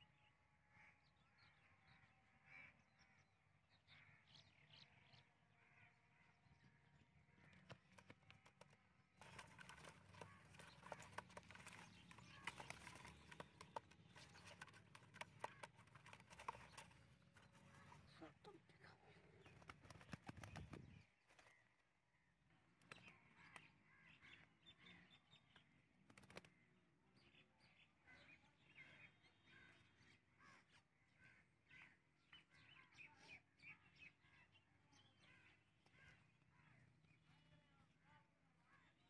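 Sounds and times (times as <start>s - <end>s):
faint bird calls: 0.6s - 26.6s.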